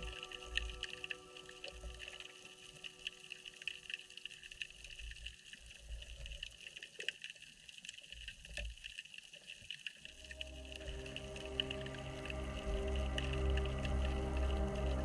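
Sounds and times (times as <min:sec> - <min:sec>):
background music: 0:00.0 - 0:03.4, 0:10.2 - 0:15.0
crackle of small clicks underwater: 0:00.0 - 0:15.0
low uneven rumble: 0:10.1 - 0:15.0.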